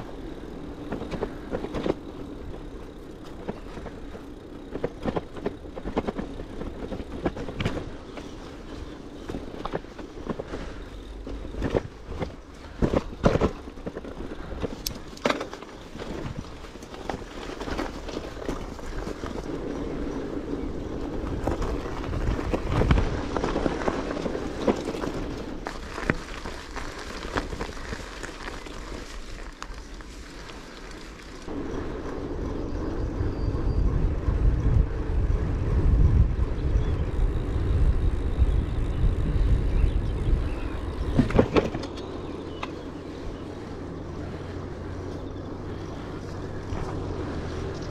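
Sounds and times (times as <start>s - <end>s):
bicycle rattles and knocks: 0.0s - 47.9s
bicycle tyre and road noise: 0.0s - 47.9s
low rumble: 31.5s - 41.4s.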